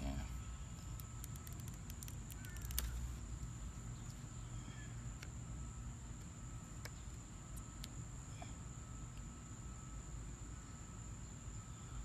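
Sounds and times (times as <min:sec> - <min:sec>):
bird chirps: 0:02.3 - 0:05.1.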